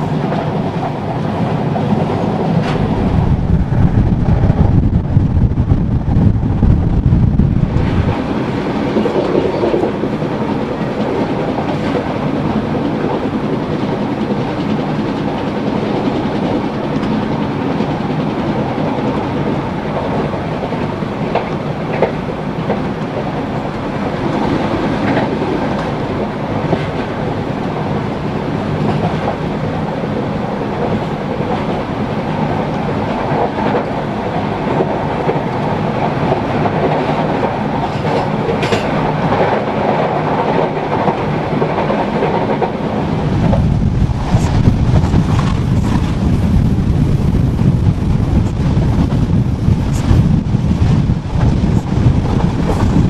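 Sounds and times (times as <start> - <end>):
train wheels rumbling on rails: 0.0 - 53.0
sharp rail clicks: 30.7 - 46.2.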